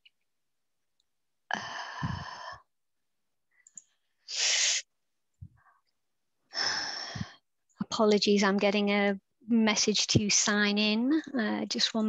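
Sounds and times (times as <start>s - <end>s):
sharp hiss of breath: 4.3s - 4.9s.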